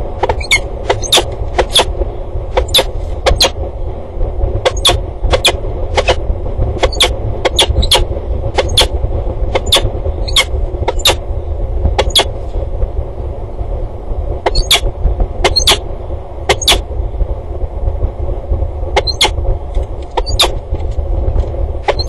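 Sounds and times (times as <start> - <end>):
steady low rumble: 0.0 - 22.0
sharp high-pitched ticks: 0.3 - 1.9, 4.7 - 6.2, 6.8 - 8.9, 9.6 - 11.2, 14.5 - 14.8, 15.5 - 15.8, 19.0 - 20.6.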